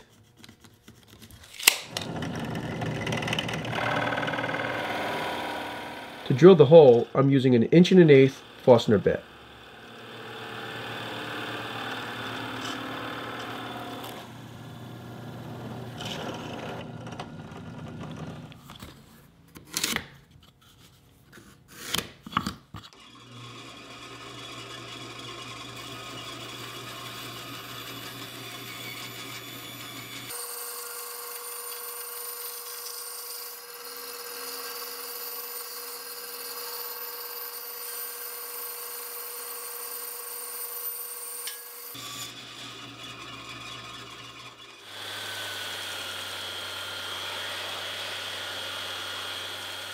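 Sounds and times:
bandsaw cutting wood: 1.4 - 18.7, 23.0 - 49.9
drill press boring into wood: 1.6 - 18.6, 23.0 - 49.9.

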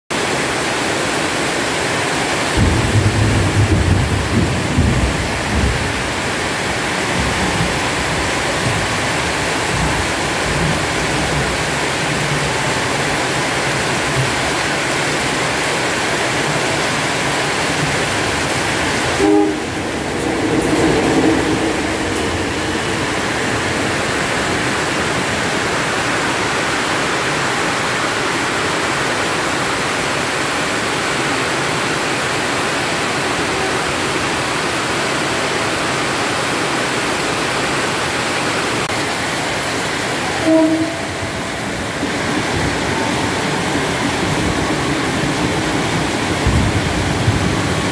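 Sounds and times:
heavy rain pouring: 0.1 - 47.9
diesel locomotive rumbling past: 2.4 - 30.2, 30.8 - 47.9
short horn-like tone: 19.2 - 19.8, 40.4 - 41.4.

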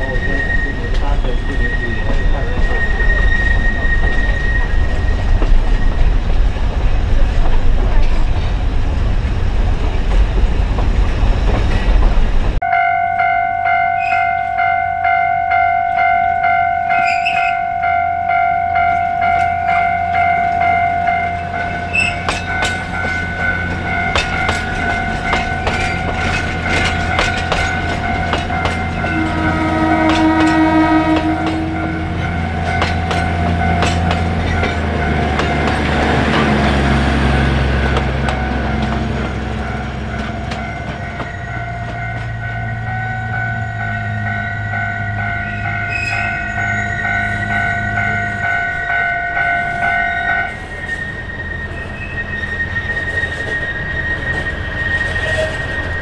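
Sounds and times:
wheel squeal: 0.0 - 6.4, 16.9 - 17.7, 21.6 - 56.0
train engine rumble: 0.0 - 56.0
wheels clicking over rail joints: 18.8 - 43.8
train horn: 27.8 - 51.8.

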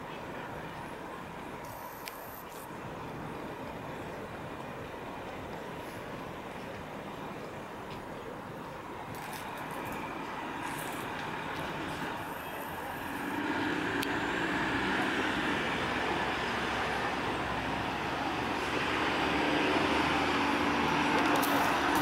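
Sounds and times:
road traffic rumble: 0.0 - 22.0
vehicle approaching: 9.1 - 22.0.

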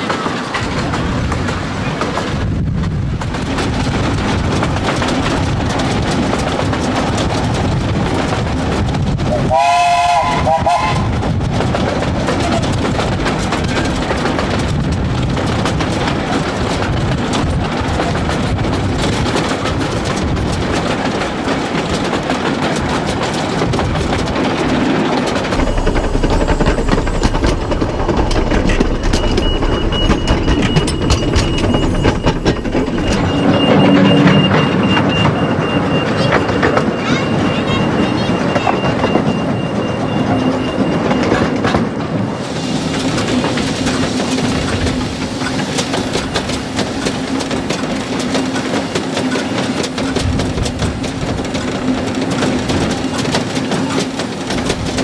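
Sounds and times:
train rumble: 0.0 - 55.0
wheels clattering over track: 0.0 - 55.0
steam whistle blast: 9.4 - 11.1
high squeal: 25.6 - 40.9.

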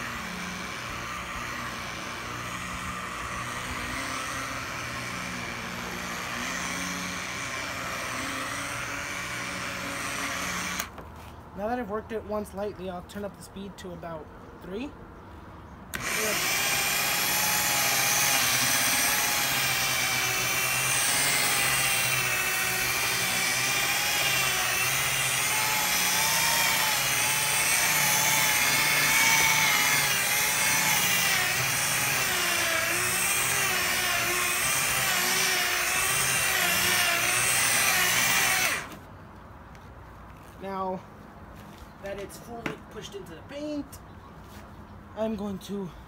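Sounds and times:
rotary polisher motor whine: 0.0 - 11.0, 15.9 - 39.0.

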